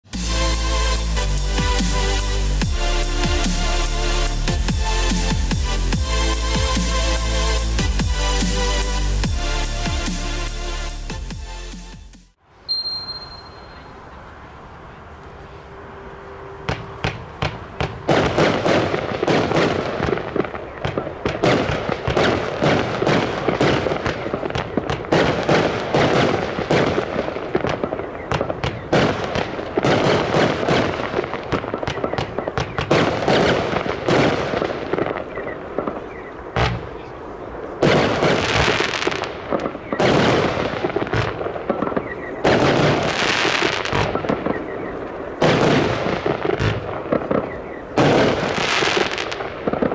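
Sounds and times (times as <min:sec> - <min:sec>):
firework shots and bursting shells: 0:16.7 - 0:37.1, 0:37.7 - 0:49.9.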